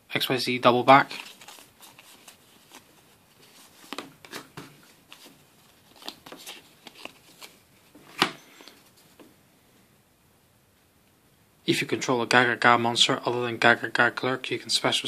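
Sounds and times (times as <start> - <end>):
cards sliding and flicking: 3.8 - 8.8.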